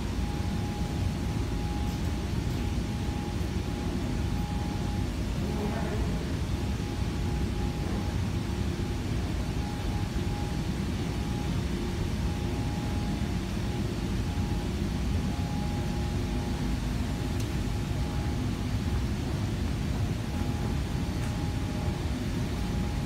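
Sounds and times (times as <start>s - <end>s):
faint whine: 0.0s - 23.0s.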